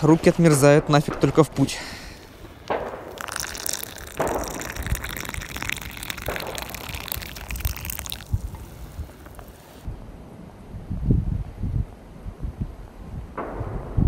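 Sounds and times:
water gushing: 3.1s - 9.9s.

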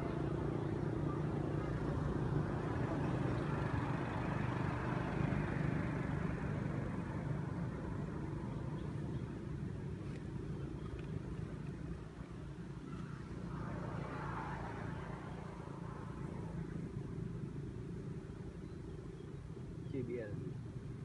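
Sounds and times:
vehicle engine humming: 0.0s - 21.0s.

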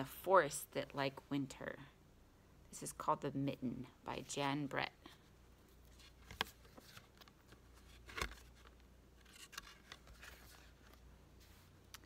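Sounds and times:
board book pages turning: 5.6s - 12.0s.

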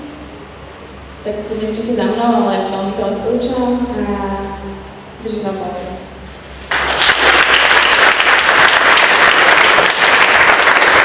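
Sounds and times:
audience applauding: 6.7s - 11.0s.

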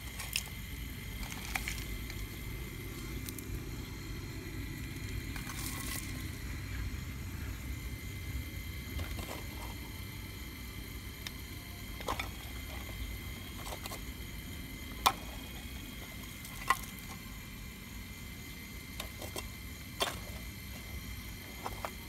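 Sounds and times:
small gear motors whirring: 0.0s - 22.0s
shale chips clicking against bucket: 5.3s - 6.2s.

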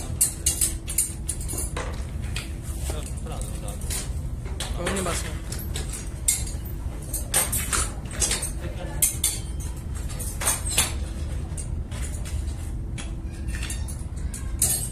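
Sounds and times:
steady low hum: 0.0s - 14.9s
metal hooks clinking: 3.0s - 11.0s, 13.0s - 14.9s.

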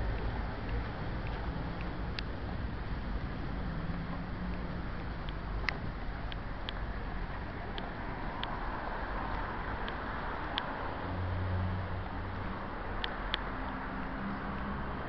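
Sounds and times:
road traffic noise: 0.0s - 15.0s
vehicle engine hum: 0.0s - 15.0s
light sharp clicks: 12.4s - 14.8s.

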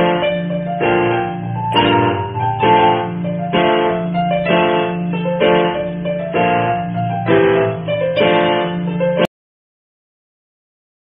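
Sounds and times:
background music chords: 0.0s - 9.3s.

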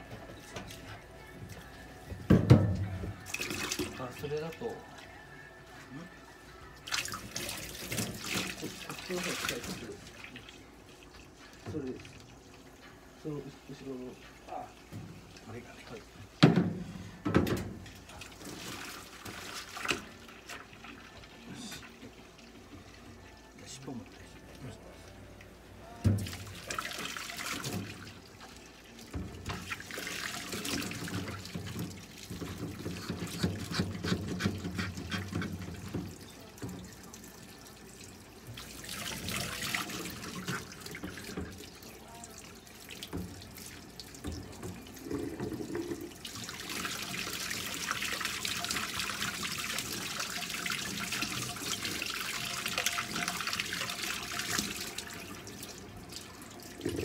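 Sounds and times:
tap water splashing into a bucket: 2.1s - 4.8s, 6.8s - 13.0s, 14.8s - 23.1s, 25.4s - 57.0s.

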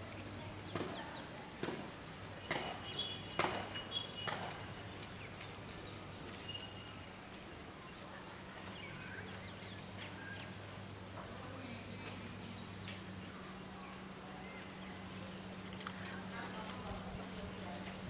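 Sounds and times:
steady low hum: 0.0s - 18.0s
sharp knocks: 2.5s - 4.7s.

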